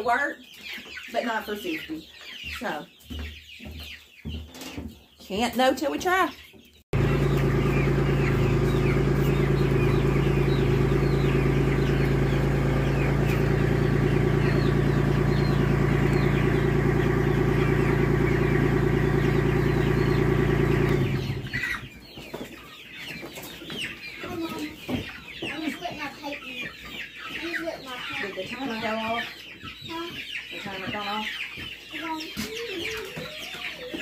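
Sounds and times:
chicks cheeping: 0.0 - 34.0
tractor engine idling: 7.0 - 21.8.

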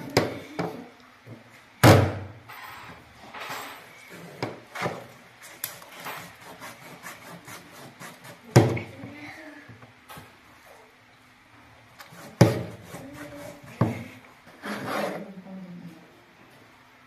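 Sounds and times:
knife chopping on plastic board: 12.2 - 13.1.

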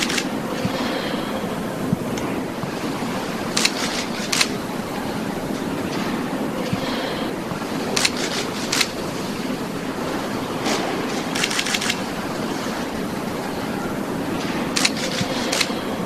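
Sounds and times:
camera shutters clicking: 0.0 - 0.3, 3.5 - 4.6, 8.0 - 9.0, 10.7 - 12.1, 14.8 - 15.8
murmur of people: 0.0 - 16.0.

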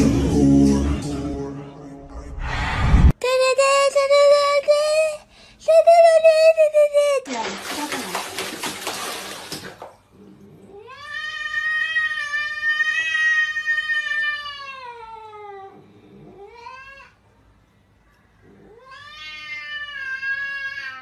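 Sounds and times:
cat yowling: 18.7 - 21.0.

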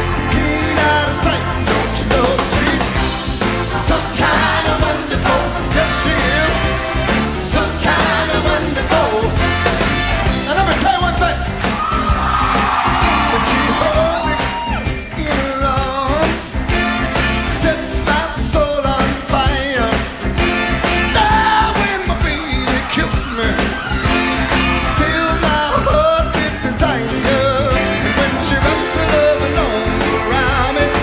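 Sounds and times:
man singing lead vocals: 0.0 - 11.6, 13.0 - 20.4, 21.0 - 24.1, 24.8 - 31.0
live rock band playing: 0.0 - 31.0
women singing backing vocals: 3.6 - 9.4.

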